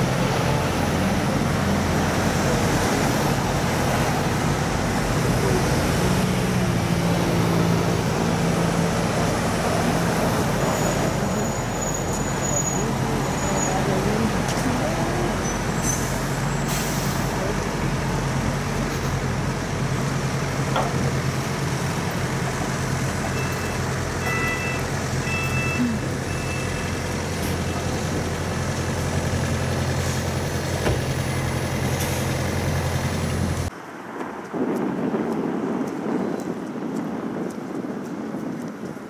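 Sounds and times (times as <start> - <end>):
bus engine idling: 0.0 - 33.7
air hiss: 15.8 - 17.4
short electronic beeps: 23.4 - 27.0.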